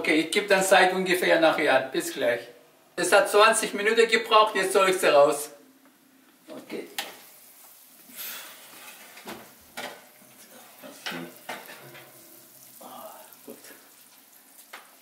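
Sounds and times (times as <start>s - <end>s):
metal pan scraping on oven rack: 8.2s - 10.0s, 11.0s - 12.5s.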